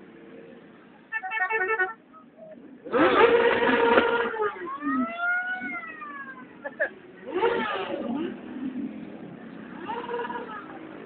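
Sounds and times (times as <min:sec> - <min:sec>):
loud steady horn blast: 0:01.1 - 0:02.0, 0:03.0 - 0:04.6
horn honking: 0:01.1 - 0:05.8, 0:09.6 - 0:11.0
motorcycle engine revving: 0:02.8 - 0:11.0.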